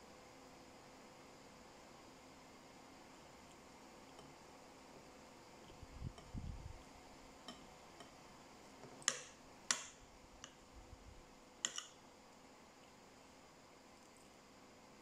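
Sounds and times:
cutlery clinking on ceramic plate: 11.6s - 12.0s.

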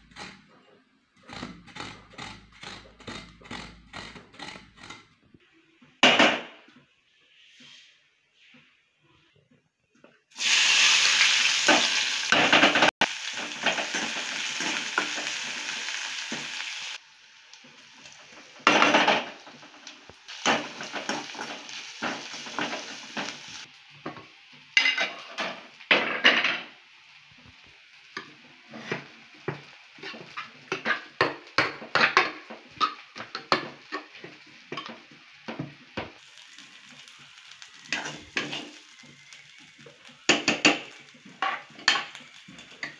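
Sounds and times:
onions sizzling in hot oil: 10.3s - 42.9s
metal ladle scraping pan: 24.8s - 26.6s, 37.9s - 38.8s.

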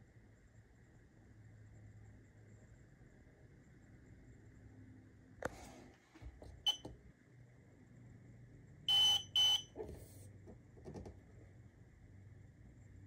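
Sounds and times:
controller beeping: 8.9s - 9.8s.

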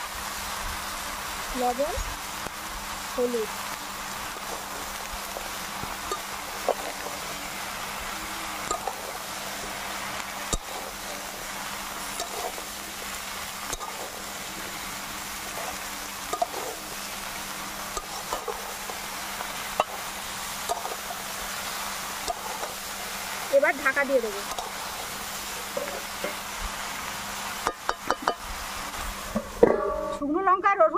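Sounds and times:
hot oil sizzling: 0.0s - 30.9s
metal spatula scraping pan: 12.1s - 12.8s, 13.6s - 14.8s, 15.4s - 17.0s, 17.9s - 19.0s.

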